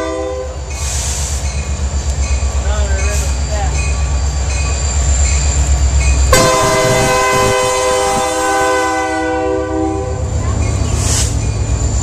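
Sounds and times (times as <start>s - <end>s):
locomotive air horn blast: 0.0s - 0.6s, 6.3s - 10.2s
freight train rumbling on rails: 0.0s - 12.0s.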